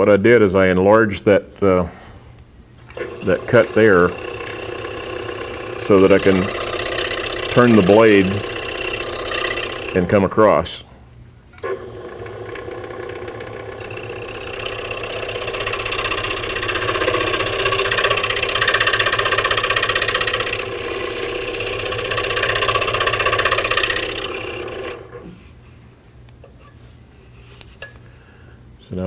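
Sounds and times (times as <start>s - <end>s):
scroll saw cutting wood: 3.0s - 10.3s, 11.6s - 25.4s.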